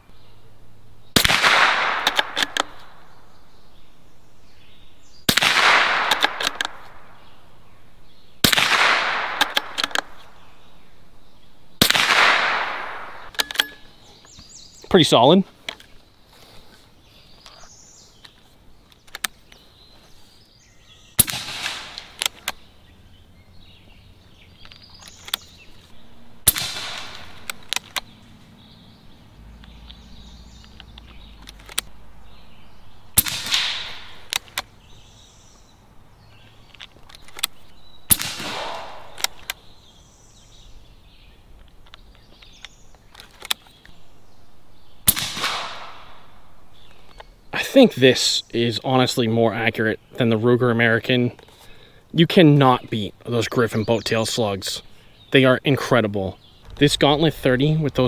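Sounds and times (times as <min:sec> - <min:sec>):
air rifle shots: 0:01.1 - 0:03.2, 0:05.2 - 0:07.3, 0:08.4 - 0:10.4, 0:11.8 - 0:13.9, 0:21.2 - 0:22.7, 0:25.2 - 0:28.1, 0:33.1 - 0:34.8, 0:37.2 - 0:39.8, 0:44.8 - 0:47.1.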